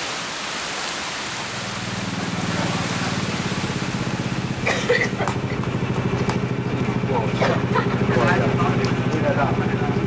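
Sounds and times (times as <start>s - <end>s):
heavy falling water hiss: 0.0s - 5.6s
low engine running: 1.3s - 10.0s.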